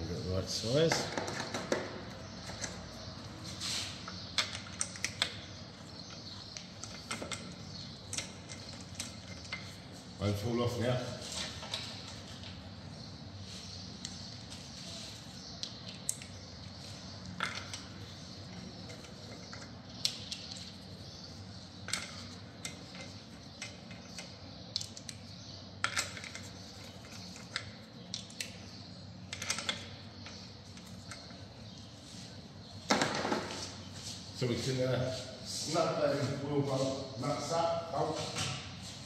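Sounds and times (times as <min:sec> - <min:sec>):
metallic clicks of wheel bolts: 0:04.0 - 0:05.4, 0:06.1 - 0:09.7.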